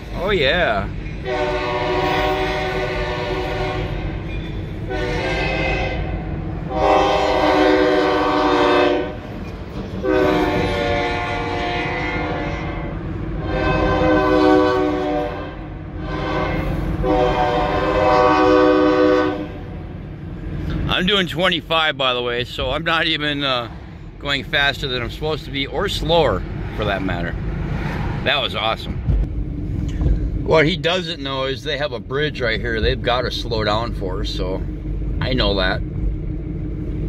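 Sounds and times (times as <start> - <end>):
low engine rumble: 0.0 - 37.0
locomotive air horn blasts: 1.2 - 9.4, 10.0 - 20.0.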